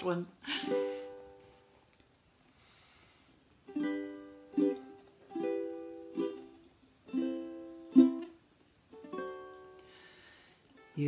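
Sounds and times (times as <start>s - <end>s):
ukulele strumming: 3.6s - 11.0s.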